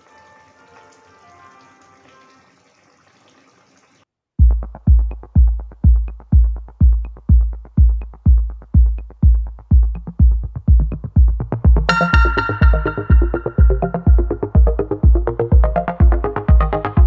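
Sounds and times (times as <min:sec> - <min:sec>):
electronic beat with kick drum: 0:04.4 - 0:17.0.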